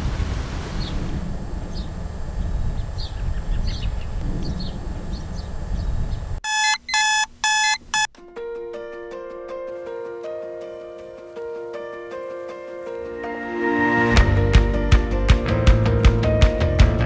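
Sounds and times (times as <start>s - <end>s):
outdoor wind rumble: 0.0s - 6.4s
digital alarm clock beeping: 6.4s - 8.1s
faint high chirps: 6.4s - 8.1s.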